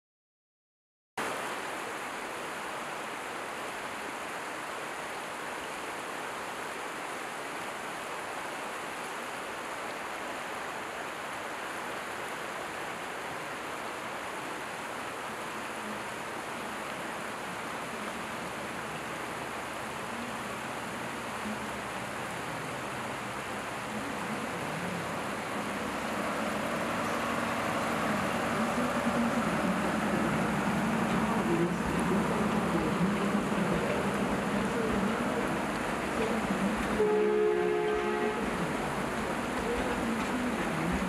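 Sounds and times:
stream rushing over rocks: 1.2s - 41.0s
train rumbling: 16.6s - 41.0s.

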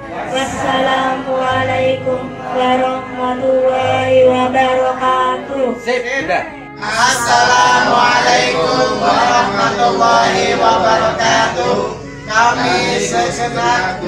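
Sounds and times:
group chanting in unison: 0.0s - 3.8s, 6.8s - 14.0s.

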